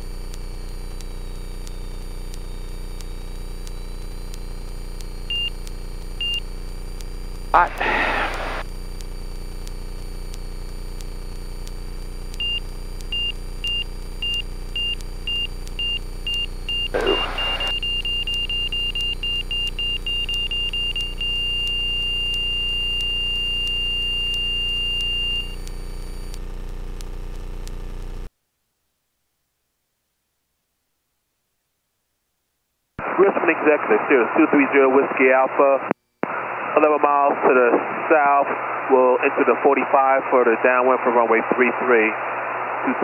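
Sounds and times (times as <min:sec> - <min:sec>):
high warning beep: 0:05.3 - 0:05.6, 0:06.2 - 0:06.4, 0:12.4 - 0:25.6
short bursts of noise: 0:07.6 - 0:08.6, 0:16.7 - 0:17.9.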